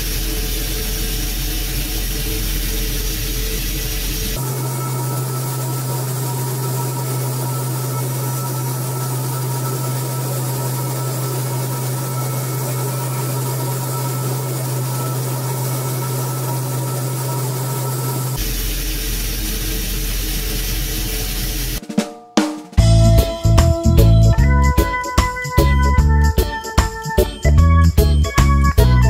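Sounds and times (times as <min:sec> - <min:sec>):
machine humming with hiss: 0:00.0 - 0:21.8.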